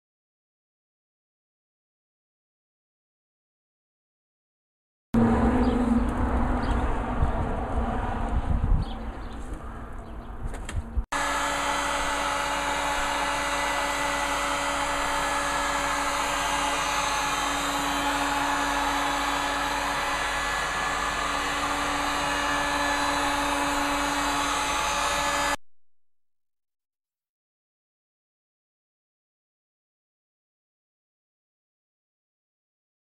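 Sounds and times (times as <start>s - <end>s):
heat gun blowing with fan whine: 11.1s - 25.6s.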